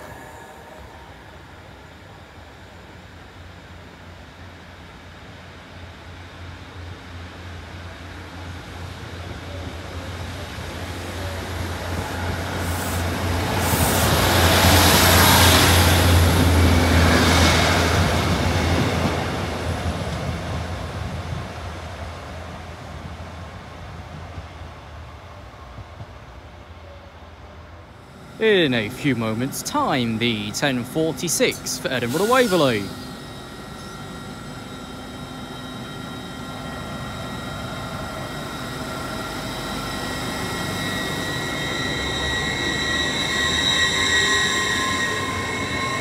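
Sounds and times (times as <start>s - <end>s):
diesel train engine drone: 0.0s - 46.0s
train wheels on rails: 8.2s - 26.5s.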